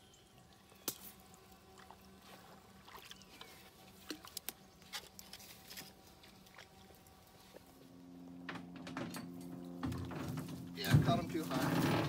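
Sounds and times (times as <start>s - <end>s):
small water splashes and drips: 0.0s - 7.8s.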